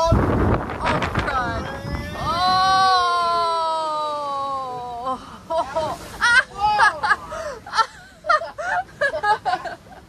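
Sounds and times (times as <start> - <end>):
wave crashing: 0.0 - 10.0.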